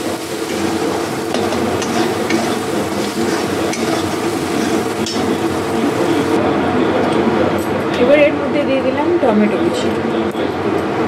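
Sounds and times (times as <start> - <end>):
onions sizzling in oil: 0.0 - 6.4
metal spatula scraping pan: 0.4 - 6.4.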